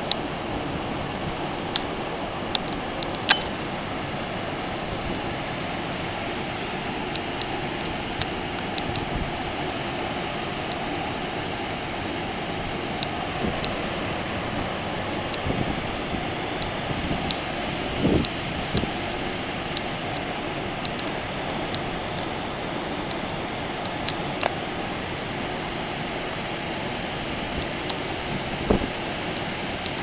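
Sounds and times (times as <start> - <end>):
rush of fan air: 0.0 - 30.0
sharp ticks: 2.6 - 3.6.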